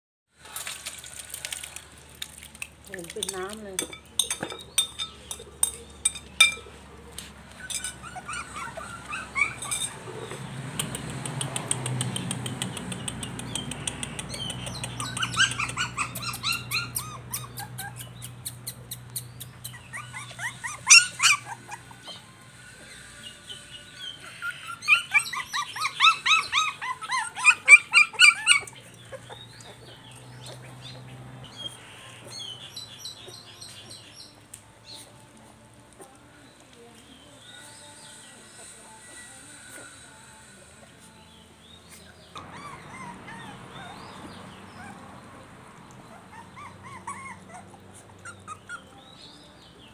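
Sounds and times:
puppies squealing and whimpering: 4.8 - 10.7, 13.5 - 35.2, 37.6 - 49.5.

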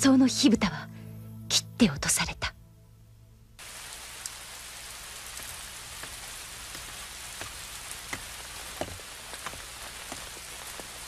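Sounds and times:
steady rain: 3.6 - 11.0.

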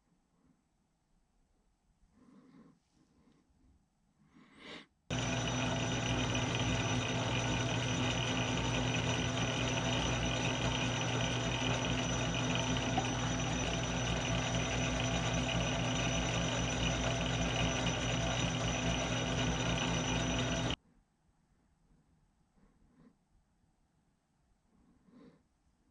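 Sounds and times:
metal lathe running: 5.1 - 20.8.

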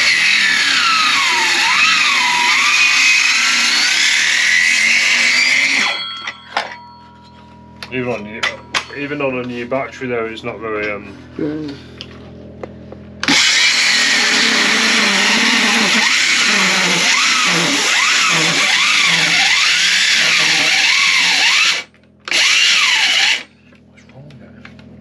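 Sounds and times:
circular saw cutting timber: 0.0 - 6.0, 13.2 - 23.5.

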